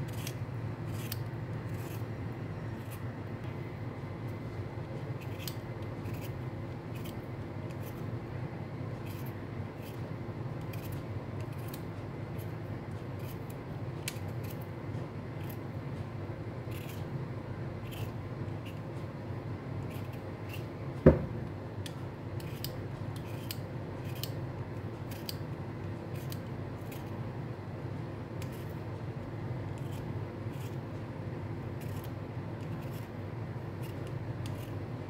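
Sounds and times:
vegetable peeler scraping beetroot: 0.0s - 3.1s, 5.1s - 8.1s, 9.0s - 14.6s, 15.4s - 15.6s, 16.7s - 17.2s, 17.8s - 19.0s, 19.8s - 20.8s, 22.4s - 24.4s, 25.0s - 25.4s, 26.1s - 27.2s, 28.4s - 28.8s, 29.7s - 30.9s, 31.7s - 34.8s
low background hum: 0.0s - 35.0s.

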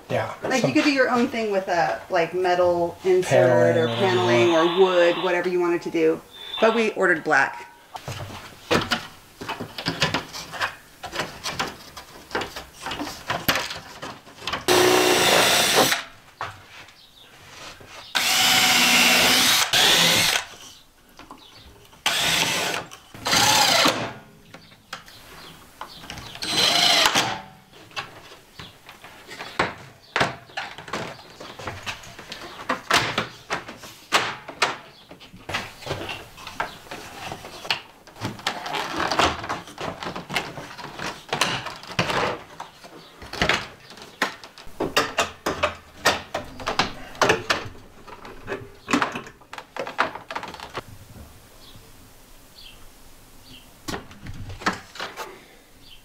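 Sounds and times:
cordless drill driving screws: 14.7s - 16.0s, 18.2s - 20.6s, 22.0s - 24.0s, 26.4s - 27.3s
handling knocks and clicks: 27.9s - 50.9s.

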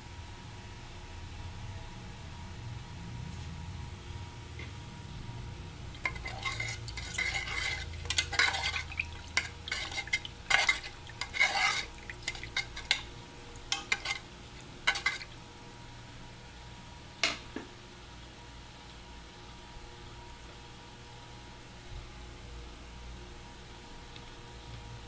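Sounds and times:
liquid sloshing in pot: 5.9s - 15.6s
utensil clinking against pot: 6.0s - 13.1s, 13.7s - 15.3s.

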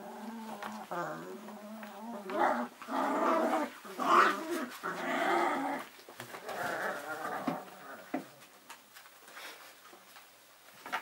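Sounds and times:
puppies play-growling: 0.0s - 8.8s.

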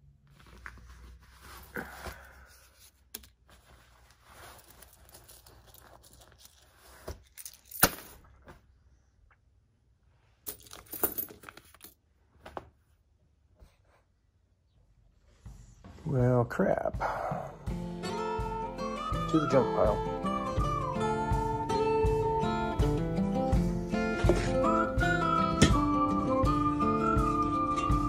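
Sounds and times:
paper money rustling: 0.2s - 8.2s, 10.5s - 12.0s
coins clinking on wood: 7.2s - 8.1s, 10.4s - 12.0s.

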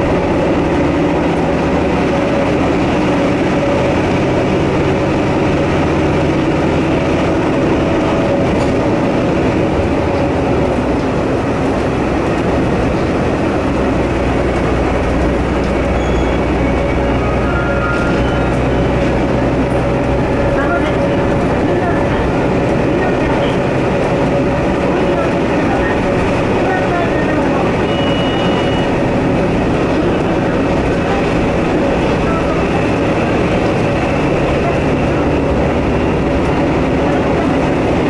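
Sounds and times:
diesel engine drone: 0.0s - 38.0s
train wheels rolling: 0.0s - 38.0s.

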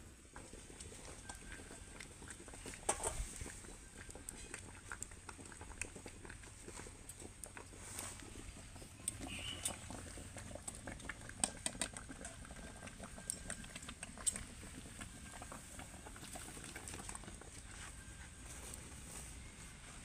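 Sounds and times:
liquid simmering and bubbling: 0.0s - 20.0s.

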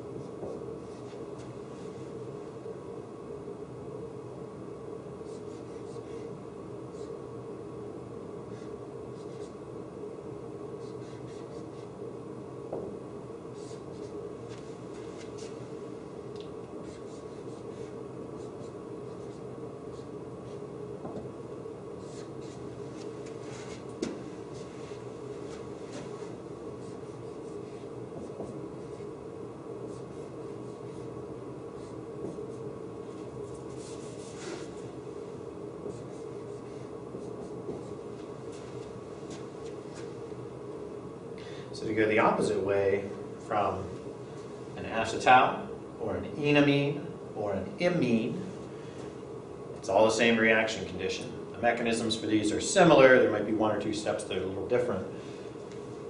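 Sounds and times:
room hum: 0.0s - 56.0s
marker writing on whiteboard: 5.2s - 6.3s, 8.5s - 9.6s, 10.8s - 12.0s, 13.5s - 15.6s, 16.8s - 21.3s, 22.0s - 24.9s, 25.5s - 29.1s, 29.8s - 31.1s, 31.8s - 34.8s, 35.8s - 39.4s.

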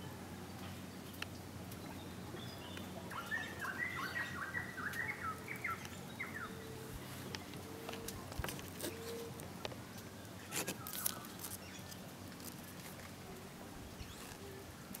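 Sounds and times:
bird chirping: 1.8s - 7.5s.

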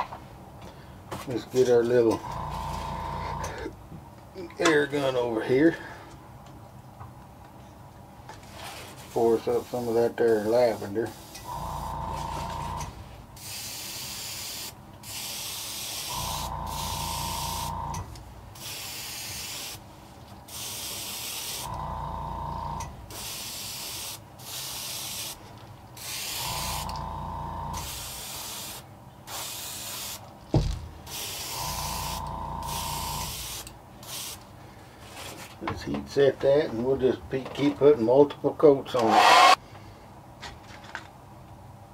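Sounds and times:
air compressor motor humming: 2.2s - 3.7s, 11.4s - 13.0s, 16.1s - 18.2s, 21.6s - 23.0s, 26.4s - 28.1s, 31.5s - 33.6s
airbrush spraying hisses: 13.4s - 17.9s, 18.6s - 19.8s, 20.5s - 21.8s, 23.1s - 25.4s, 26.0s - 27.1s, 27.7s - 30.2s, 31.1s - 34.4s.

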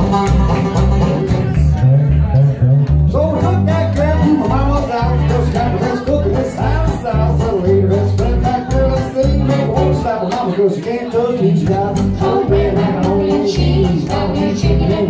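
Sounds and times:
banjo: 0.0s - 15.0s
strummed acoustic guitar: 0.0s - 15.0s
upright bass plucked: 0.0s - 15.0s
person singing: 3.2s - 15.0s.

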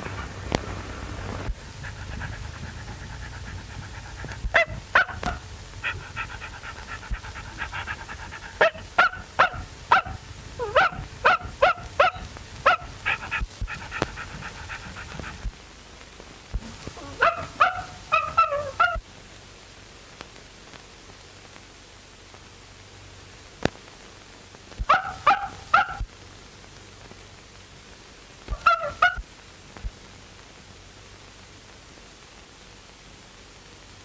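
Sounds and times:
low hum: 0.0s - 15.8s
small dog yapping: 1.8s - 15.5s, 16.9s - 19.0s, 24.8s - 26.1s, 28.5s - 29.2s.

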